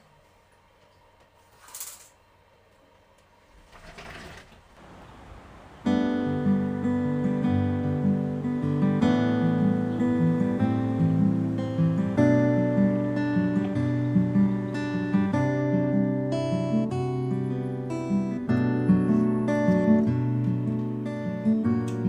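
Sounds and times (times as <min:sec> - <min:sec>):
curtain swishing open: 0:03.5 - 0:04.8
strummed acoustic guitar music: 0:05.8 - 0:22.0.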